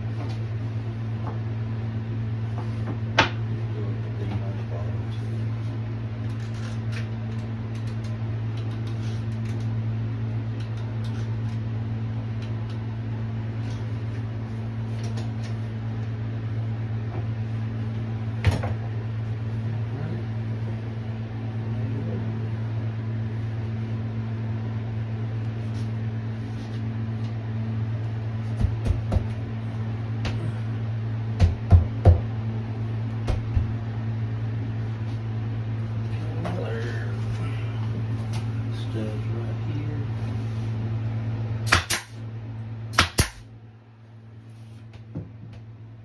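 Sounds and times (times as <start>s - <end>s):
low mechanical hum: 0.0s - 46.0s.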